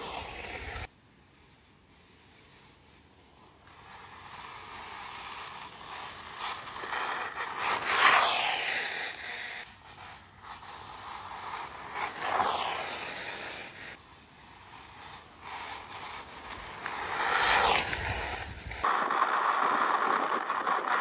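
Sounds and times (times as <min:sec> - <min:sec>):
rc car motor whine: 0:05.0 - 0:13.9.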